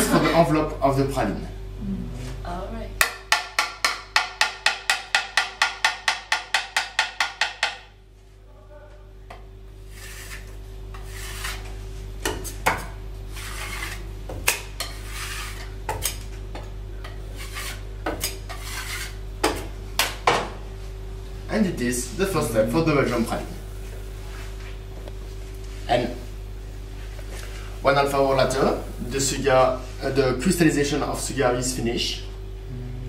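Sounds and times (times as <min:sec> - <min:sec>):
metal scraper rasping: 0:09.9 - 0:11.7, 0:13.3 - 0:14.0, 0:14.8 - 0:15.7, 0:17.4 - 0:19.2.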